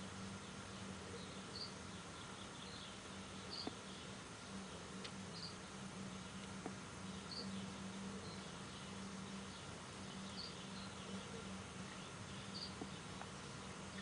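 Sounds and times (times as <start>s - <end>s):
steady low hum: 0.0s - 14.0s
faint clicks: 5.0s - 5.2s.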